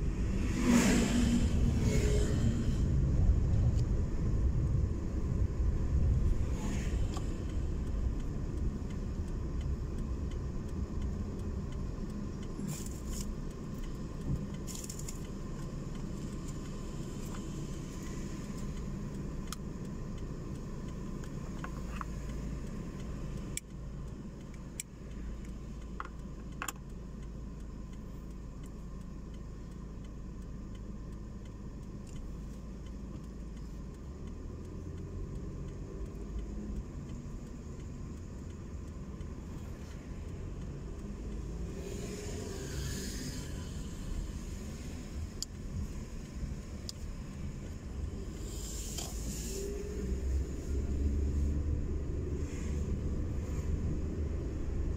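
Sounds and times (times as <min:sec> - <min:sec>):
car engine and road noise: 0:00.0 - 0:54.9.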